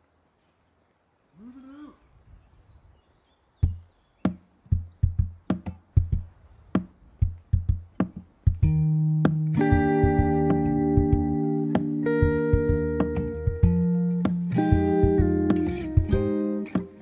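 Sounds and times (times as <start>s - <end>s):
plucked and drum beat: 3.6s - 17.0s
sustained chords: 8.6s - 17.0s.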